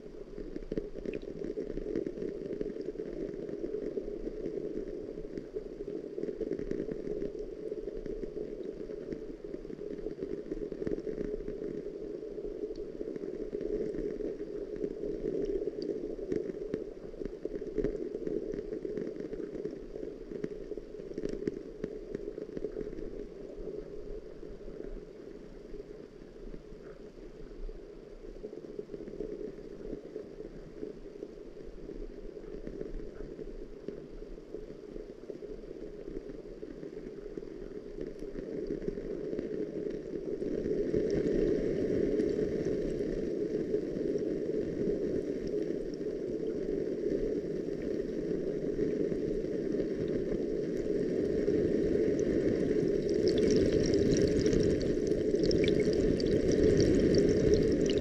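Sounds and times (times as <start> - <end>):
muffled underwater gurgling: 36.0 - 58.0.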